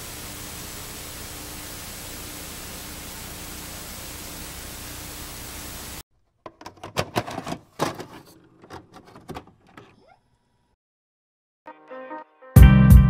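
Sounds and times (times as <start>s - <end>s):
tv static hiss: 0.0s - 6.0s
tape mechanism clicks and clunks: 6.4s - 10.2s.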